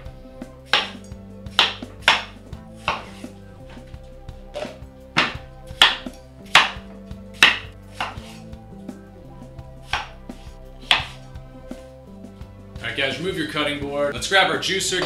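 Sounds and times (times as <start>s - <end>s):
knife chopping on cutting board: 0.6s - 3.3s, 4.6s - 6.8s, 7.4s - 8.5s, 9.8s - 11.2s.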